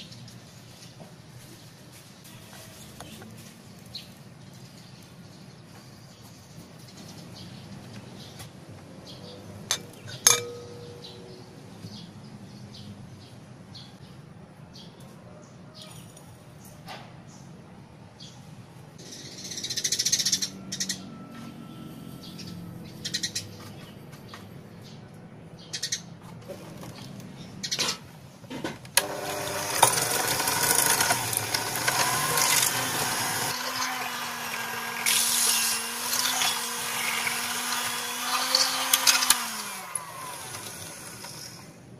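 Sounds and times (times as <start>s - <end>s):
plate clinking against glass bowl: 9.7s - 11.0s
electric hand mixer running: 29.0s - 41.8s.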